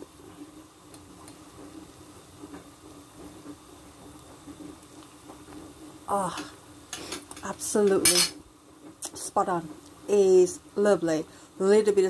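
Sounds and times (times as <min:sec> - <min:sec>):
soup bubbling: 0:00.0 - 0:07.8.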